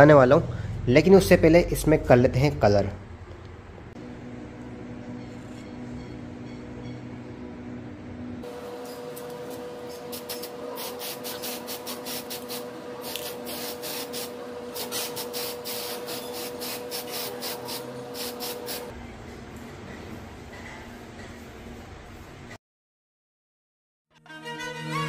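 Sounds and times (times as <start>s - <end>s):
steady hum: 0.2s - 19.3s
aerosol spray can hissing: 10.0s - 18.9s.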